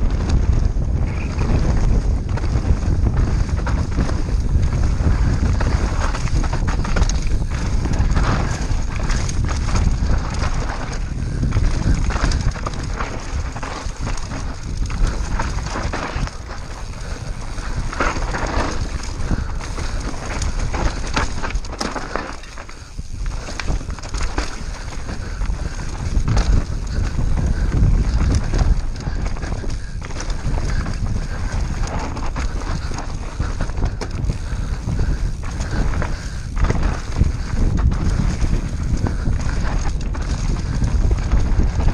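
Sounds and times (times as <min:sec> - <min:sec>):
bike rattling and clattering: 0:00.0 - 0:41.9
tyres rolling over dirt: 0:00.0 - 0:41.9
wind rumbling on microphone: 0:00.0 - 0:41.9.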